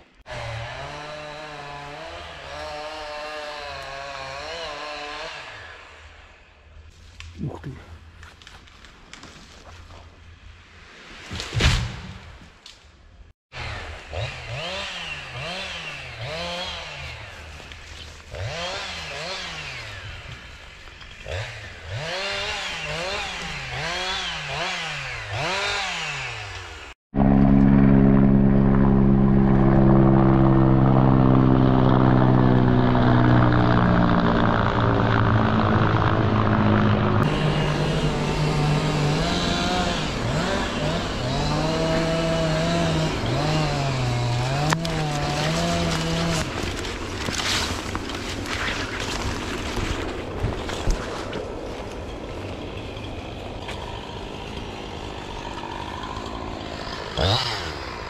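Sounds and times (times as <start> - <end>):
chainsaw revving: 0.2 - 6.3, 13.5 - 30.8, 31.5 - 49.9, 53.5 - 58.0.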